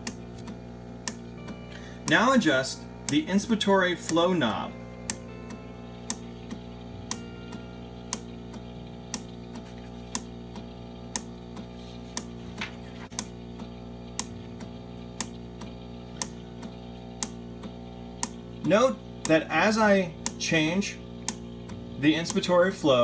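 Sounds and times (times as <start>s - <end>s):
ventilator valves clicking: 0.0s - 23.0s
soft background music: 1.0s - 9.7s.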